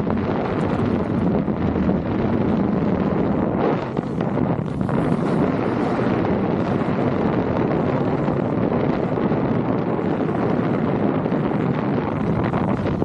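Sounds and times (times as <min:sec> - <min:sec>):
wind rushing over microphone: 0:00.0 - 0:13.0
snowboard sliding on snow: 0:03.6 - 0:08.6.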